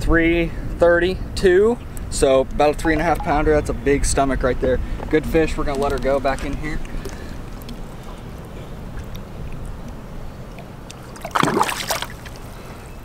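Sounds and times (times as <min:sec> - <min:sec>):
fish splashing into water: 0:11.0 - 0:12.5.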